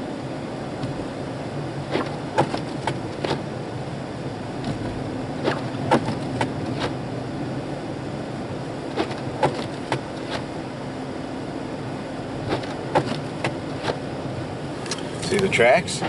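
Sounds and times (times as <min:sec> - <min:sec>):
engine and tyre hum: 0:00.0 - 0:16.0
windshield wipers clicking: 0:01.8 - 0:03.6, 0:04.6 - 0:07.0, 0:08.9 - 0:10.6, 0:12.4 - 0:14.1, 0:14.8 - 0:16.0.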